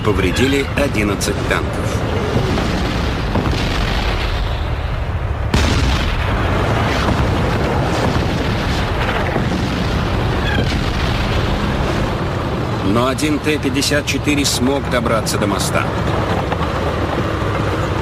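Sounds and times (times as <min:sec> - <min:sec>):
deep rumble: 0:00.8 - 0:14.3
explosions: 0:02.1 - 0:12.9
cannon fire: 0:02.4 - 0:12.0.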